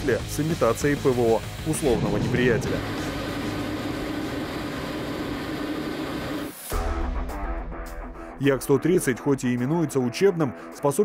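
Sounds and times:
music with heavy bass and guitar: 1.5 - 4.0.

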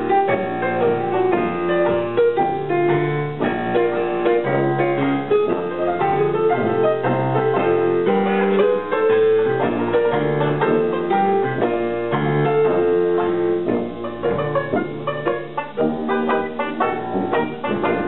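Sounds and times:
hot jazz band playing live: 0.0 - 18.0
jazz piano run: 0.0 - 18.0.

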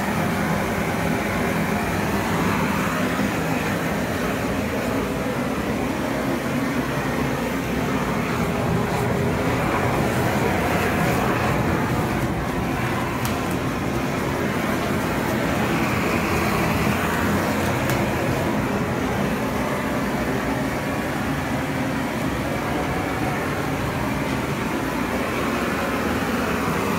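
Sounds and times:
gas torch burning: 0.0 - 26.9.

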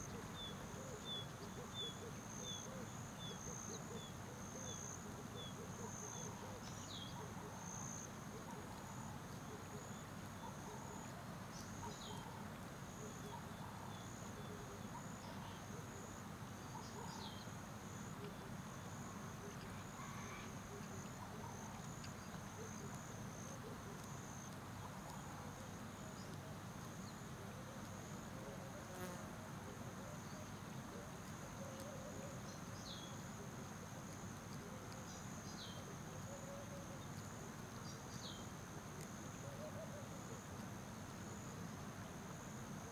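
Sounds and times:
insects trilling: 12.9 - 27.2.

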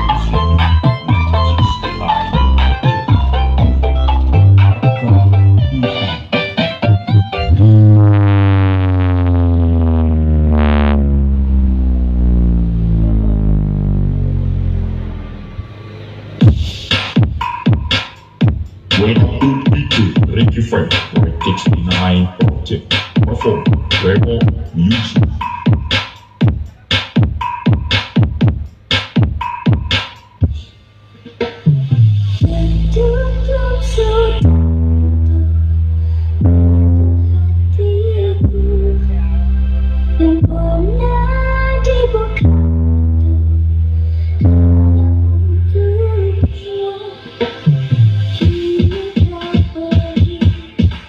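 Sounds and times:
electronic dance music over speakers: 0.0 - 14.4, 15.0 - 34.6, 44.3 - 51.0
deep synthesizer bass note: 0.0 - 17.4, 18.4 - 25.9, 31.9 - 46.6.

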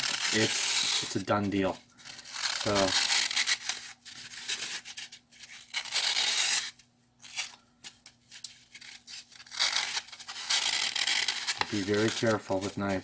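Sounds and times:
craft knife scraping floral foam: 8.8 - 13.0.

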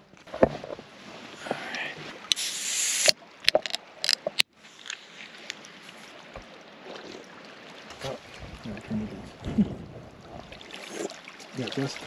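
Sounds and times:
camera handling rubbing hiss: 2.3 - 4.2.

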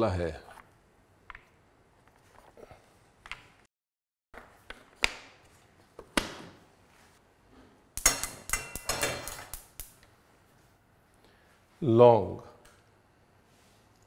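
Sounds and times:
metal kitchenware clinking: 8.0 - 9.6.

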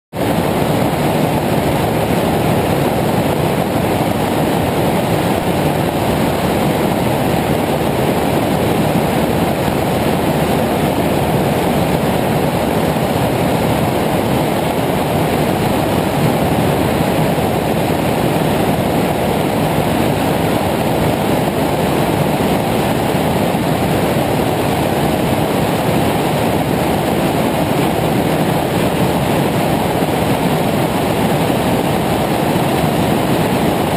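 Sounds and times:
light aircraft engine and wind: 0.1 - 33.9.

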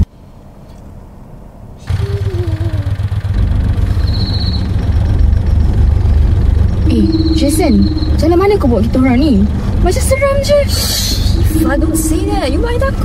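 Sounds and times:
car engine and road noise: 0.0 - 13.0
high pulsed chirp: 3.4 - 13.0.

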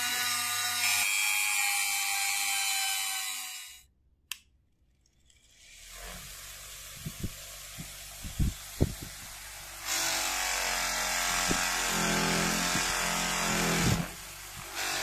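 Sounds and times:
bench grinder humming: 5.1 - 15.0.

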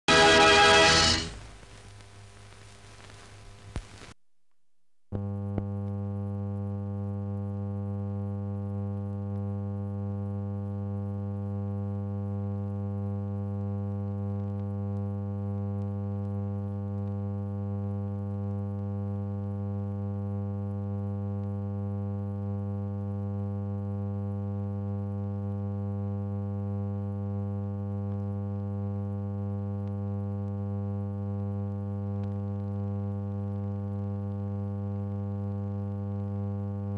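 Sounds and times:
music: 0.0 - 1.4.

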